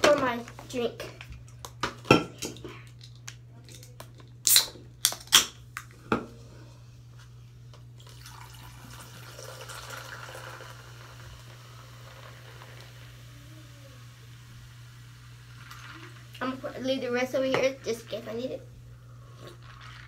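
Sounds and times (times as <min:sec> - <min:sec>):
soda can opening with hiss: 0:04.4 - 0:05.4
soda pouring and fizzing: 0:08.0 - 0:18.5, 0:19.2 - 0:20.0.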